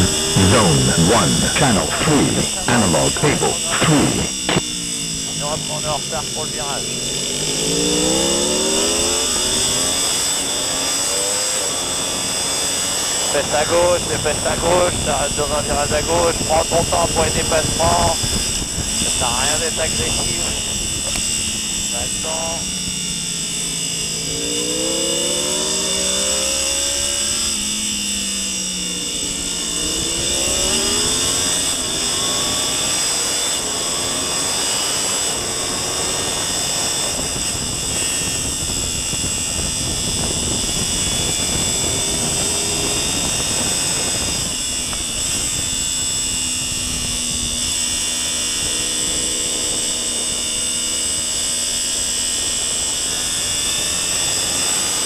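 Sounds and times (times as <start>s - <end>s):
motorcycle engine revving: 4.3s - 13.3s, 22.8s - 34.7s.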